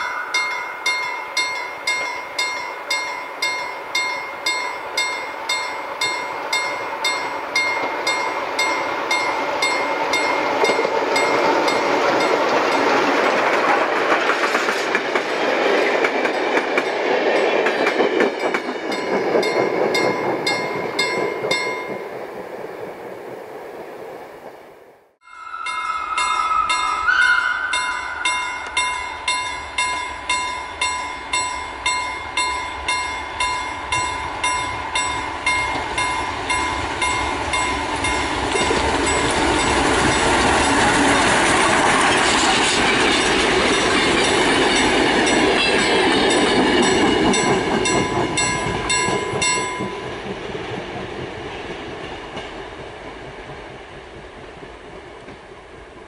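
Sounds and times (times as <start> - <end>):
level crossing bell ringing: 0.0 - 12.4, 25.2 - 40.3
train wheels clattering: 0.0 - 23.0, 33.9 - 55.6
steam train passing: 0.0 - 56.0.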